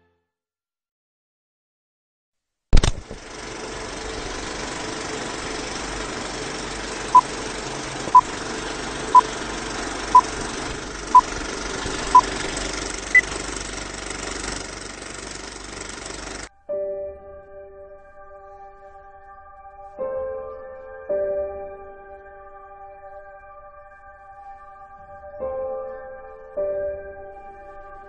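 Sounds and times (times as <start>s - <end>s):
film projector whir: 2.8s - 16.5s.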